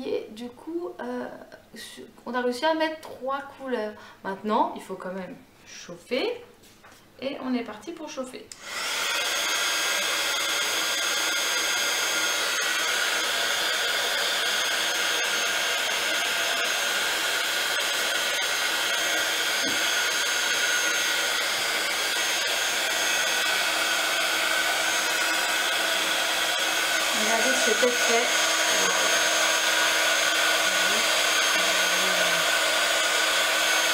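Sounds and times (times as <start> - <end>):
heat gun fan whirring: 8.5 - 33.9.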